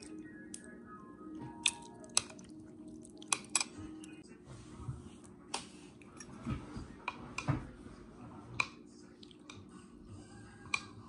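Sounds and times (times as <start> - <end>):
soft chewing: 1.4 - 4.3, 8.4 - 11.0.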